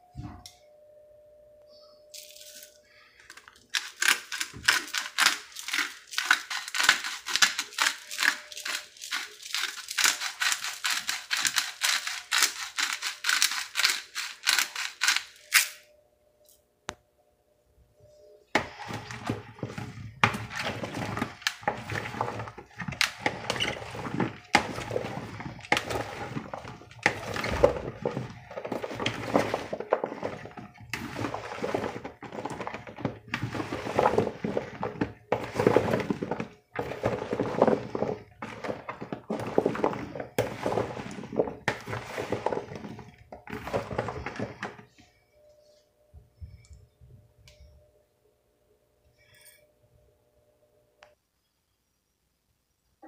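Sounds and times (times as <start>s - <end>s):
vegetables tumbling in bowl: 2.2s - 15.6s, 18.5s - 45.1s
spatula scraping bowl: 3.8s - 15.4s, 18.6s - 45.0s.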